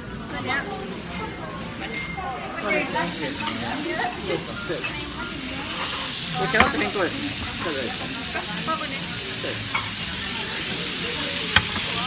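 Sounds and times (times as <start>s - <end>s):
steak sizzling on hot plate: 2.4s - 12.0s.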